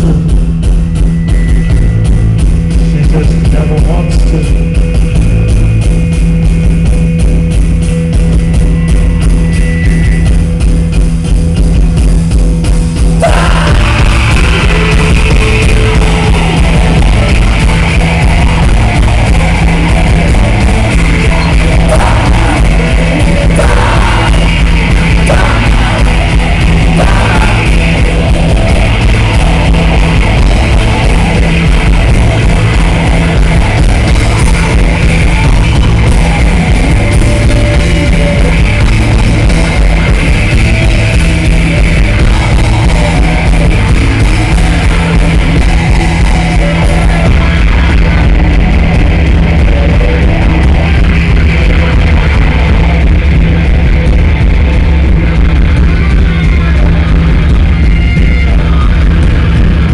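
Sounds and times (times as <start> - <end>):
live rock band playing: 0.0 - 59.9
low repeating riff: 0.0 - 59.9.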